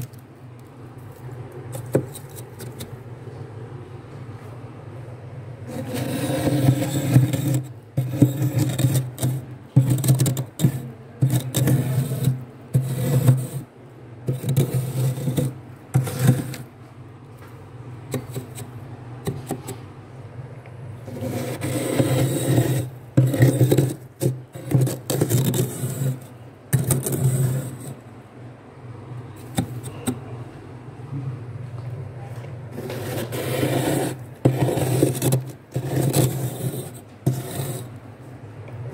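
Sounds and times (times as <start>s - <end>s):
glass rim scraping freezer frost: 1.1s - 3.0s, 5.7s - 16.7s, 18.1s - 19.8s, 21.0s - 28.0s, 29.4s - 30.2s, 32.7s - 37.9s.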